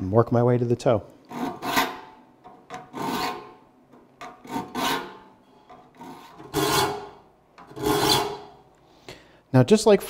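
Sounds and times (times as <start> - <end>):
file rasping on saw teeth: 1.3 - 2.2, 2.8 - 3.6, 4.4 - 5.3, 6.0 - 8.6.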